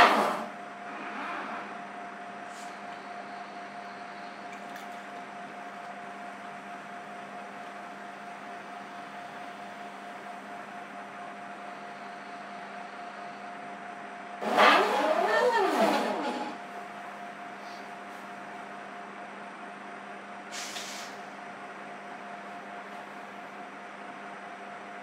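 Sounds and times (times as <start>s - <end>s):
faint hum and hiss: 0.0s - 25.0s
robot arm motors whining: 14.4s - 16.7s.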